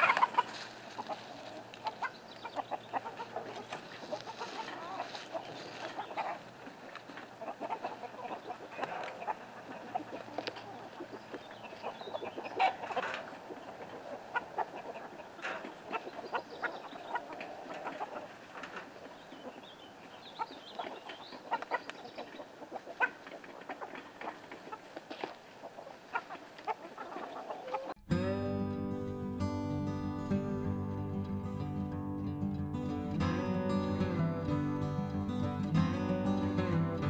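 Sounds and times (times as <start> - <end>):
wood shavings scraping and rustling: 0.0 - 2.2, 3.0 - 7.9
chickens clucking: 0.0 - 28.0.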